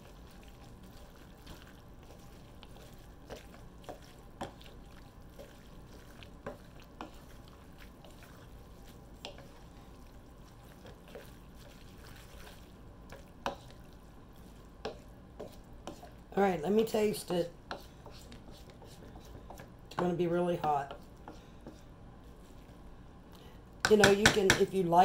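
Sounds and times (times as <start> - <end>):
wooden spoons knocking pan: 23.8 - 24.7.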